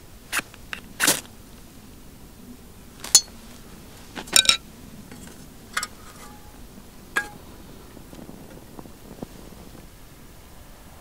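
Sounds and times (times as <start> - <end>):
metal stove parts clinking: 3.1 - 3.4, 4.2 - 6.6, 7.2 - 7.5.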